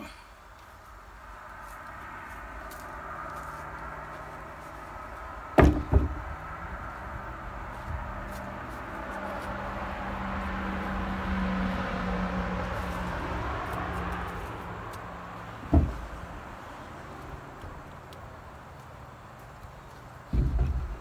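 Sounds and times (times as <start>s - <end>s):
vehicle engine hum: 0.0s - 21.0s
wooden post thudding on deck: 5.5s - 6.4s, 15.6s - 16.3s, 20.3s - 21.0s.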